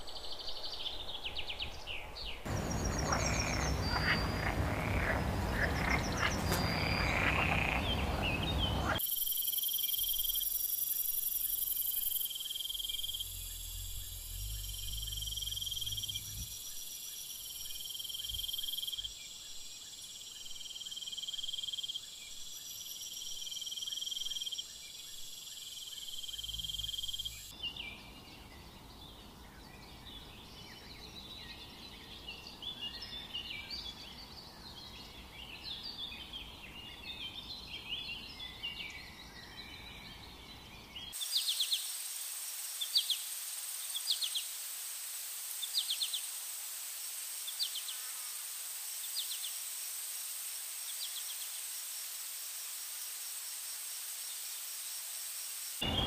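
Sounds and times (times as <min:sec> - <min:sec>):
bird chirps: 0:00.7 - 0:17.4
insects chirring: 0:02.5 - 0:27.6, 0:41.1 - 0:56.0.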